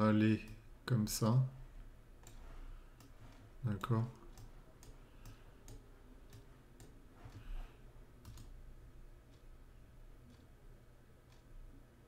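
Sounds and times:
faint computer mouse clicks: 0:03.0 - 0:07.5, 0:08.2 - 0:08.5.

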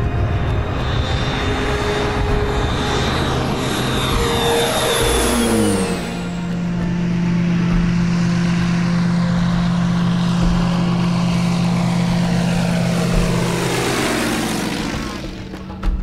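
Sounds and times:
propeller plane flying over: 0:00.0 - 0:16.0.

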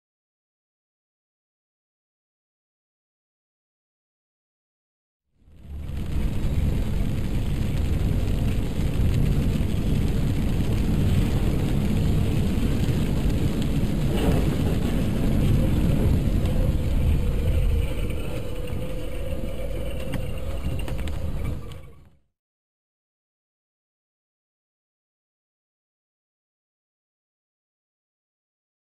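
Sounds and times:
rain on a car: 0:05.4 - 0:22.0
car road rumble: 0:05.4 - 0:22.1.

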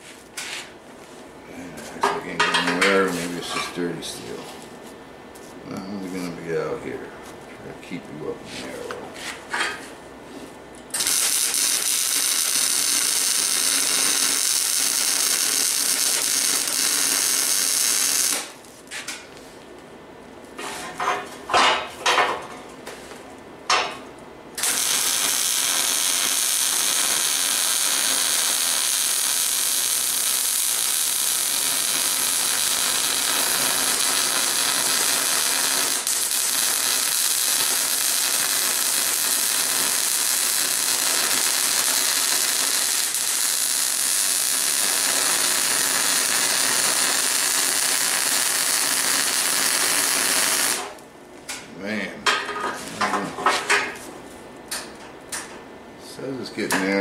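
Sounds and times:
welding arc running: 0:10.8 - 0:18.8, 0:24.6 - 0:51.1.

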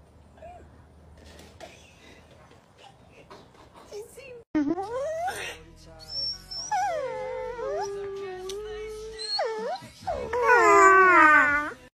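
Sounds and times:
dogs howling: 0:06.4 - 0:11.9.

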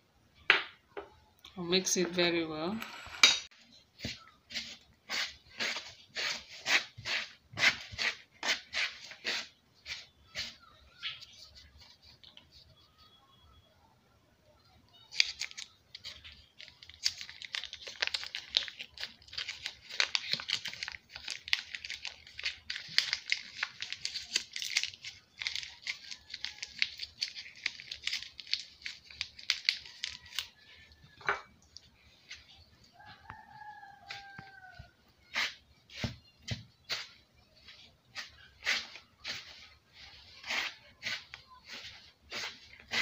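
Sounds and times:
wrapper crackling and tearing: 0:15.1 - 0:30.6.

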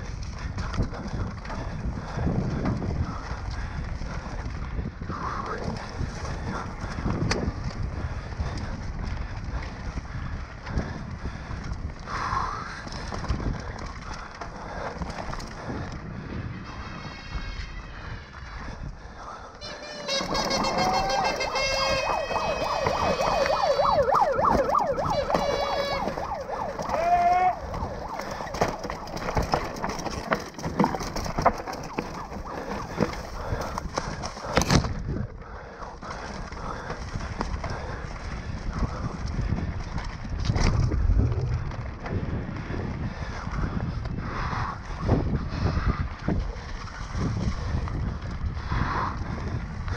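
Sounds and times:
bike rattling and clicking: 0:00.0 - 0:49.9
bike tyres on dirt and leaves: 0:00.0 - 0:49.9
wind rushing over microphone: 0:00.0 - 0:49.9
tyres crunching over stones: 0:19.6 - 0:23.5, 0:24.5 - 0:34.9.

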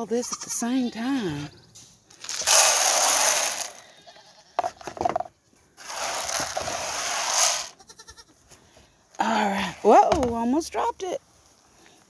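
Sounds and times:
goat bleating: 0:00.0 - 0:01.8, 0:03.8 - 0:04.9, 0:07.7 - 0:08.4
feed pellets poured into trough: 0:02.2 - 0:03.8, 0:05.8 - 0:07.7.

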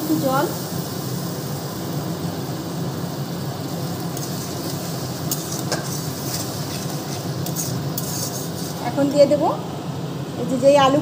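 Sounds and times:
masala sizzling in a pan: 0:00.0 - 0:10.7
metal spatula scraping a pan: 0:04.1 - 0:09.2.

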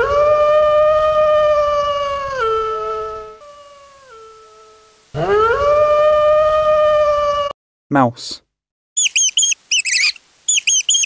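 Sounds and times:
wolf howling: 0:00.0 - 0:07.6.

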